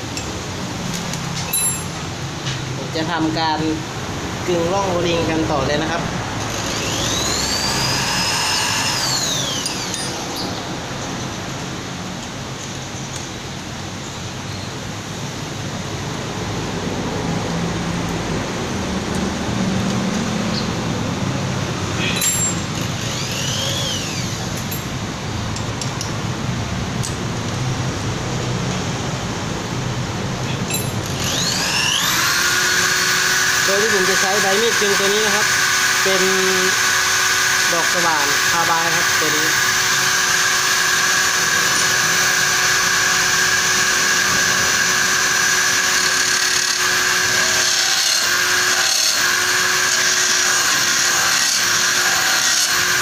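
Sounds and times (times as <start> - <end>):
electric drill motor whine: 6.4 - 10.6, 22.3 - 24.9, 31.0 - 53.0.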